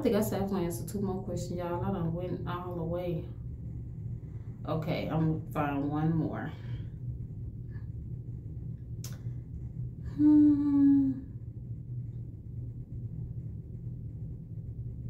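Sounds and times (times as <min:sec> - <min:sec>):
low background hum: 0:00.0 - 0:15.0
woman humming hmm: 0:10.0 - 0:11.4.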